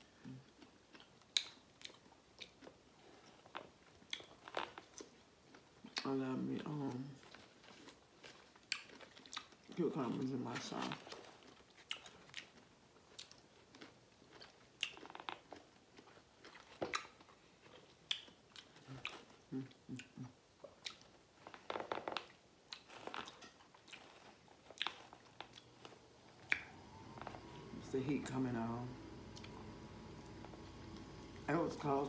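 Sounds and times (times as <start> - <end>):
quiet chewing: 0.0 - 32.0
wet lip smacks and clicks: 1.0 - 2.6, 18.0 - 19.1.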